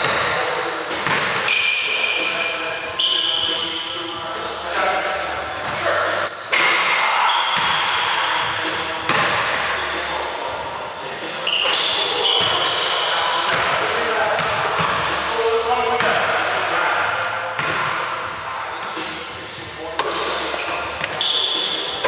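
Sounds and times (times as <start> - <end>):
sneakers squeaking on hardwood: 0.0 - 3.9, 5.6 - 9.3, 11.4 - 12.9, 20.0 - 22.0
players' voices: 0.0 - 22.0
basketball bouncing: 9.1 - 9.4.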